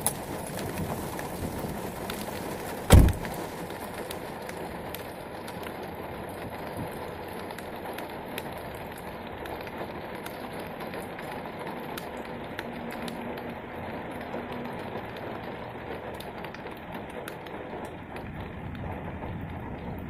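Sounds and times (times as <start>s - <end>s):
rain on pavement: 0.0s - 20.0s
raindrops ticking close by: 0.0s - 20.0s.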